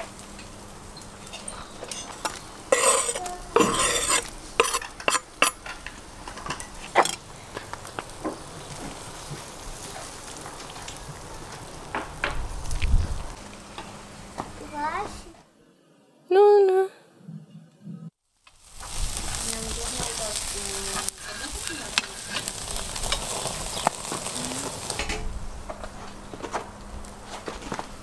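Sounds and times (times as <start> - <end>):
food sizzling: 0.0 - 15.1, 18.2 - 25.6
metal utensils scraping pot: 1.2 - 7.2, 20.9 - 23.9.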